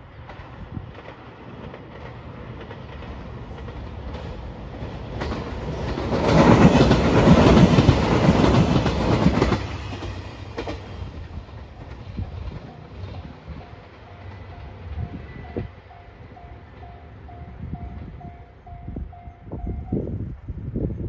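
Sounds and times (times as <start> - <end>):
diesel train passing: 0.0 - 21.0
wheels clattering over rails: 0.2 - 13.9.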